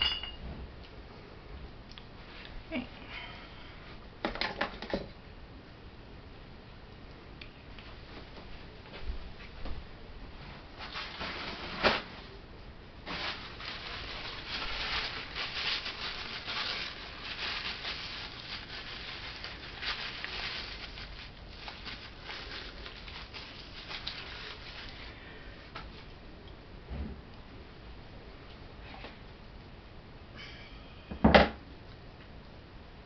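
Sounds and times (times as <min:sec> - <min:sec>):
rustling and handling noises: 0:07.7 - 0:12.4, 0:13.0 - 0:26.2.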